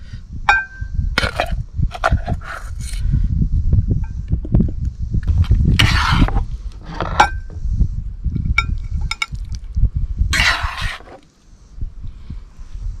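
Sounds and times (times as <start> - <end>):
metal spatula scraping skillet: 5.8 - 6.4, 10.3 - 11.2.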